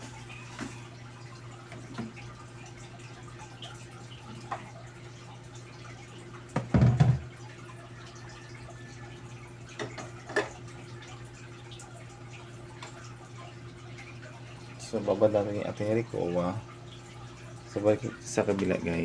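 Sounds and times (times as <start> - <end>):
pot clunking in metal sink: 6.5 - 7.3, 9.8 - 10.6.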